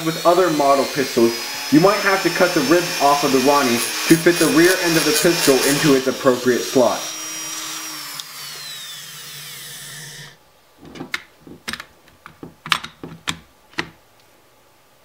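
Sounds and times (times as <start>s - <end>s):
rotary tool whining: 0.0s - 11.1s
plastic parts clicking and knocking: 10.8s - 14.0s.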